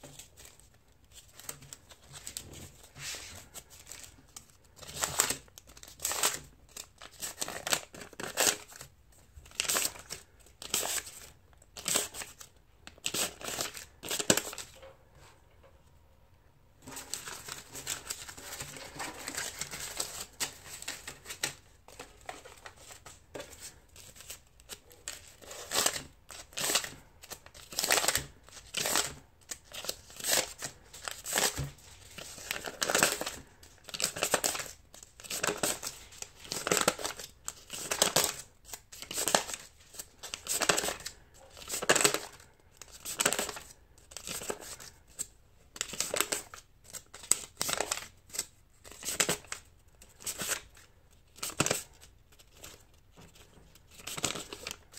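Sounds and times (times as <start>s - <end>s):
paper money rustling: 16.8s - 54.9s
bills counted by hand: 16.9s - 54.9s.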